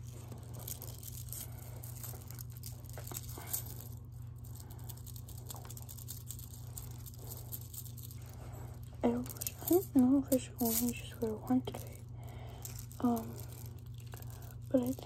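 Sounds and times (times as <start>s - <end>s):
soft rustling: 0.0s - 15.0s
steady low hum: 0.0s - 15.0s
bead bracelets clicking: 9.2s - 15.0s.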